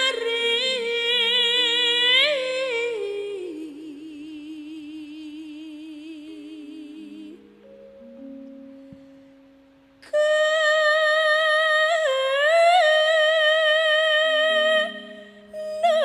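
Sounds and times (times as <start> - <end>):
woman singing into a microphone: 0.0 - 7.6, 10.0 - 16.0
quiet gamelan notes: 6.1 - 12.8.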